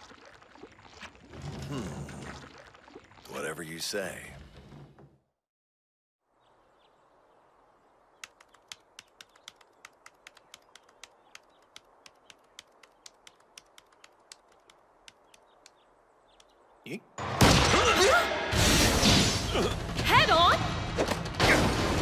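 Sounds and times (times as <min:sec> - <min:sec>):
laptop keyboard typing: 0:08.2 - 0:15.8.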